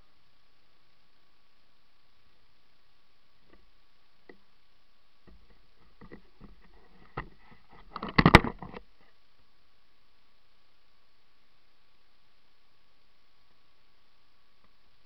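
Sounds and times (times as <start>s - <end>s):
rustling and knocking: 5.2s - 8.9s.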